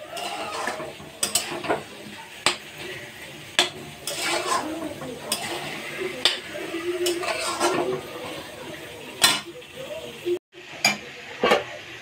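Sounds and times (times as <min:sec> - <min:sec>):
spatula scraping a pan: 0:00.0 - 0:09.5
food frying: 0:00.0 - 0:12.0
spatula knocking against pan: 0:03.6 - 0:03.8.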